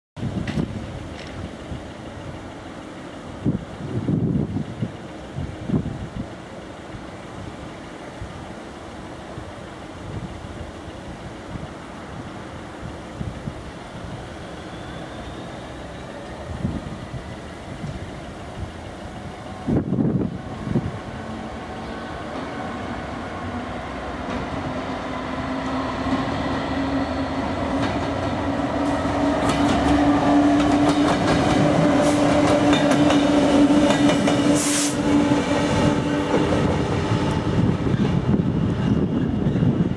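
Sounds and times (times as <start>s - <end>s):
diesel locomotive engine: 0.2s - 39.9s
wheels clicking over rail joints: 27.6s - 34.6s.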